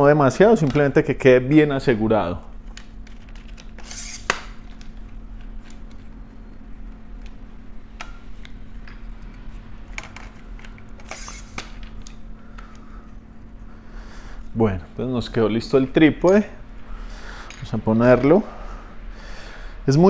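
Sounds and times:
steady low hum: 0.0 - 20.0
tripod screws clicking: 2.8 - 5.0, 10.0 - 12.2.

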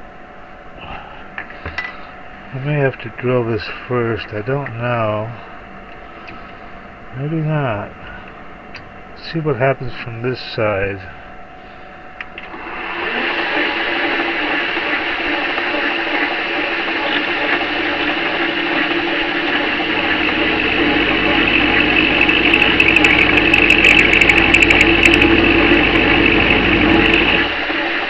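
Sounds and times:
metal lathe cutting steel: 12.5 - 28.0.

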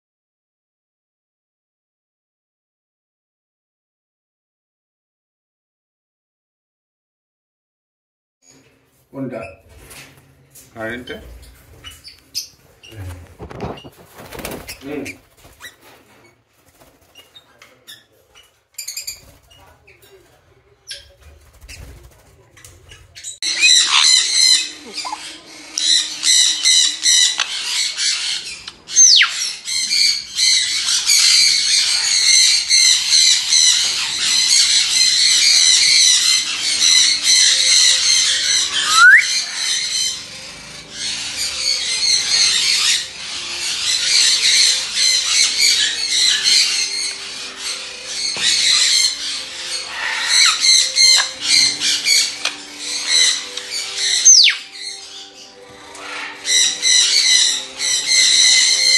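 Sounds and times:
parrots screeching and squawking: 10.9 - 20.1, 22.8 - 58.9
sharp sliding whistles: 38.8 - 39.4.

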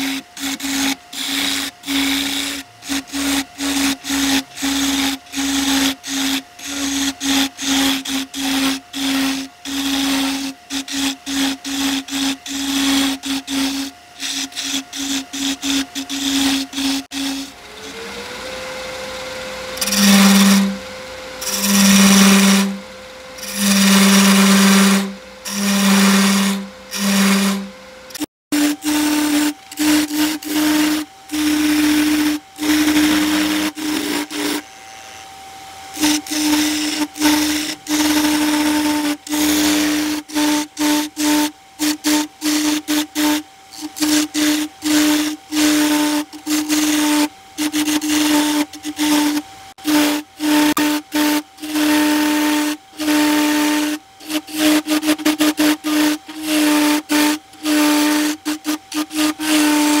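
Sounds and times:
turning tool cutting wood: 0.0 - 60.0
wood lathe humming: 0.0 - 60.0.

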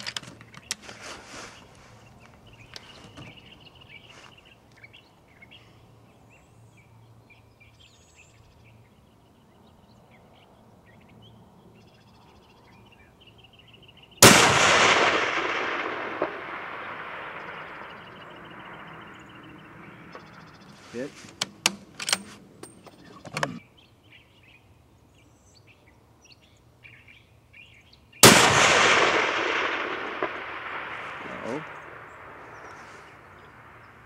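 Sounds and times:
rifle shot echoing: 14.2 - 20.6, 28.2 - 34.0.

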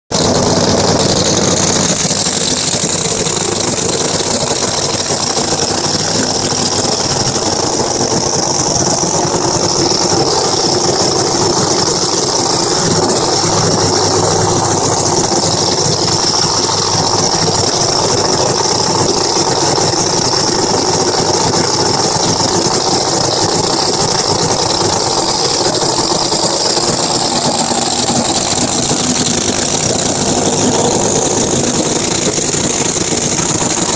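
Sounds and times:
drag car engine idling: 0.1 - 33.9.

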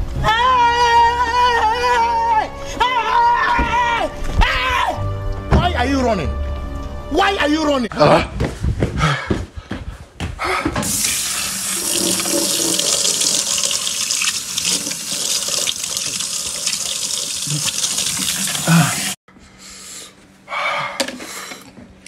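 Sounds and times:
tap water running into sink: 10.8 - 19.2.

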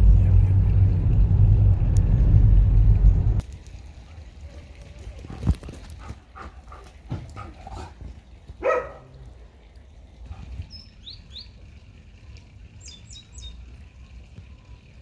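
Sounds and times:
low rumble: 0.0 - 3.4
birds chirping: 10.6 - 11.6.

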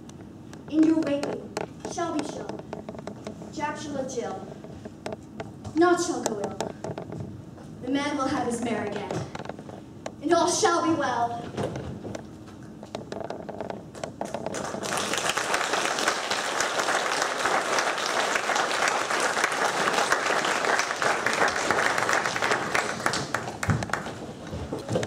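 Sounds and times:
audience applauding: 14.5 - 24.4.

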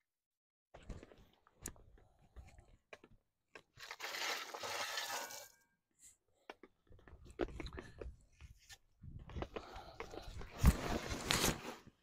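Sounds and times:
gravel pouring: 3.8 - 5.5
shovel scraping and knocking: 3.8 - 5.6.

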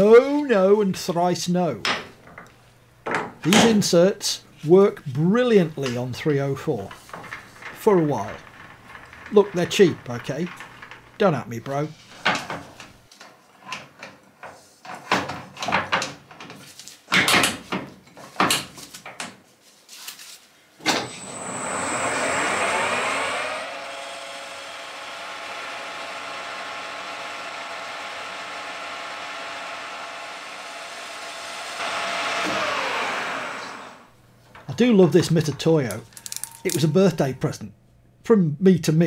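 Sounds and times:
lathe spinning with high whistle: 21.0 - 34.1.

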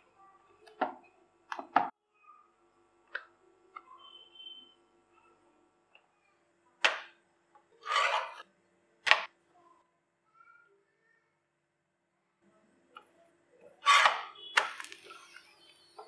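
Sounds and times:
spatula scraping griddle: 7.8 - 8.4.

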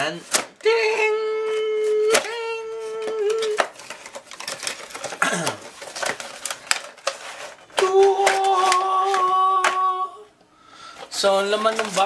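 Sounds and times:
cardboard and plastic packaging crackling: 0.0 - 10.1, 10.8 - 12.0
person singing long note: 7.8 - 10.3.

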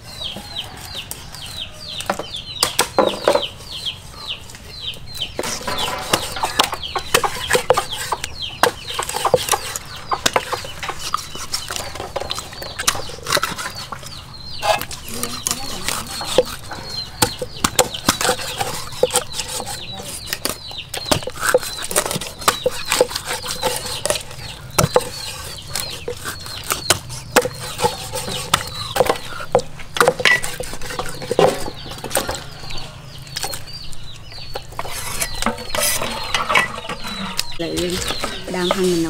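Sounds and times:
chickens clucking: 0.0 - 39.0
cleaver chopping on wooden board: 17.2 - 19.7, 20.4 - 30.7.

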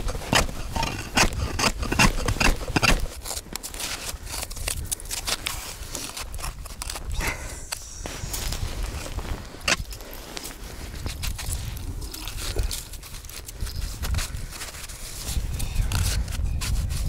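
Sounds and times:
ice chisel chopping ice: 0.0 - 3.4
metal ice scoop scraping: 0.0 - 4.5.

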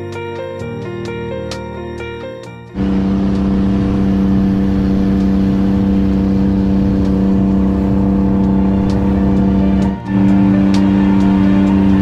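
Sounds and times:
engine running steadily: 2.4 - 12.0.

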